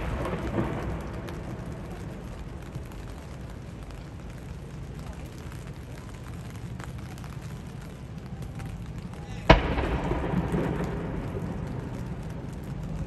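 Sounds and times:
distant helicopters rumbling: 0.0 - 13.0.

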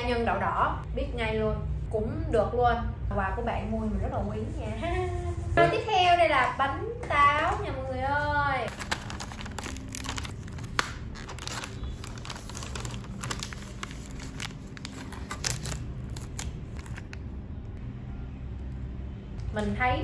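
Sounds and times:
plastic wrapper crinkling: 8.7 - 17.3.

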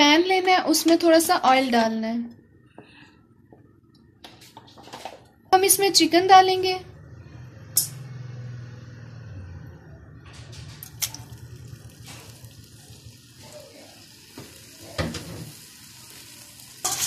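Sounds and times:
chicken sizzling in oil: 10.8 - 17.0.

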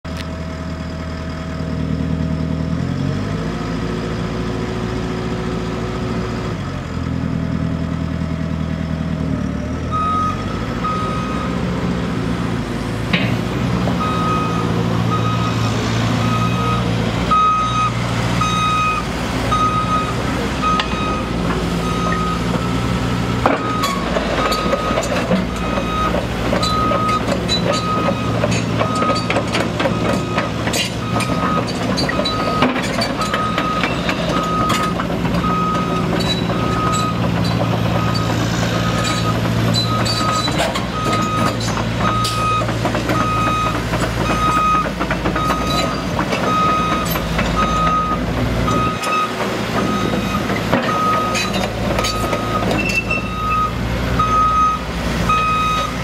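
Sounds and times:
diesel engine running: 0.0 - 56.0
reversing alarm beeping: 9.9 - 11.7, 14.0 - 23.0, 23.6 - 56.0.

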